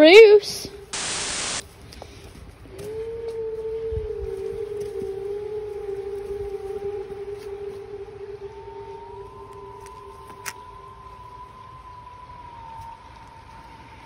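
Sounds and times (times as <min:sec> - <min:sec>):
low rumble of outdoor noise: 0:00.0 - 0:14.0
low eerie tone: 0:03.0 - 0:14.0.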